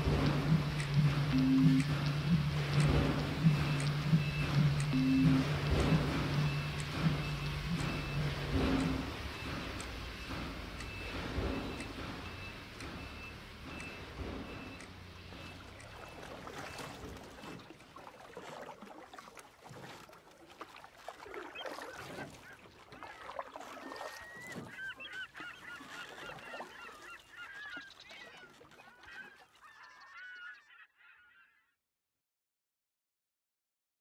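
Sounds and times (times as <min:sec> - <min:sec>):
flock of birds calling: 0:00.0 - 0:16.9, 0:21.4 - 0:31.6.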